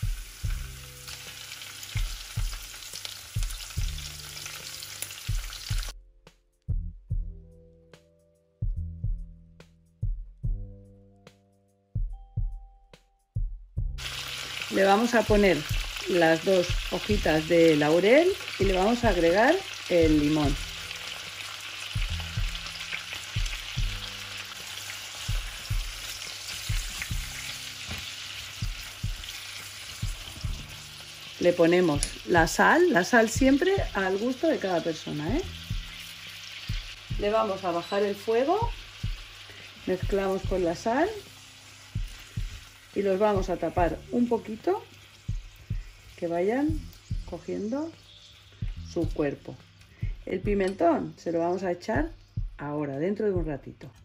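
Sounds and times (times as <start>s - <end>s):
prawns sizzling in oil: 0.0s - 6.0s, 13.9s - 50.8s
background music with a beat: 0.0s - 14.4s, 15.3s - 16.1s, 16.7s - 17.4s, 20.0s - 31.2s, 33.4s - 34.2s, 35.2s - 37.6s, 38.6s - 44.2s, 45.2s - 50.8s, 52.0s - 54.0s.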